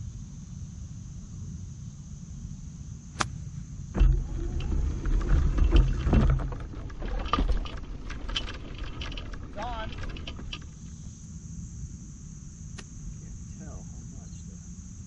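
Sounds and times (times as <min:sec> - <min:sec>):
golf club striking ball: 0:03.2 - 0:03.4.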